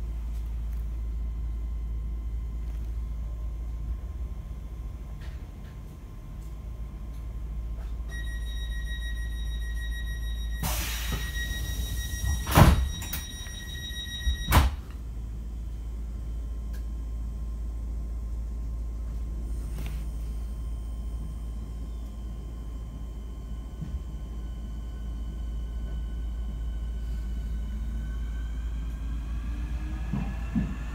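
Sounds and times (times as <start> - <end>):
high warning tone: 8.1 - 14.8
train doors thudding shut: 10.6 - 13.3
low train rumble: 23.7 - 30.9.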